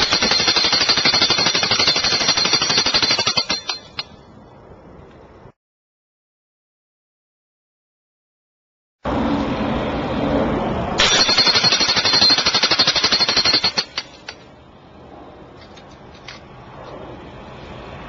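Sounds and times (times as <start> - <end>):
jackhammer hammering on steel: 0.0 - 4.1, 11.0 - 14.4.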